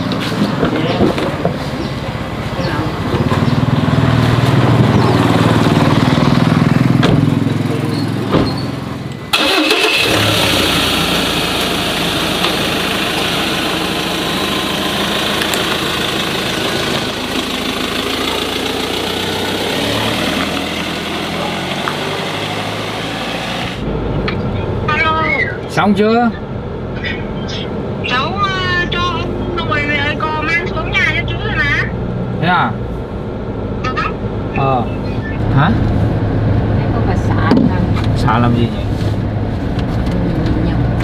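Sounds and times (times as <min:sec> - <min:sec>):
noisy engine rumble: 0:00.0 - 0:41.0
motor engine running: 0:09.4 - 0:23.8.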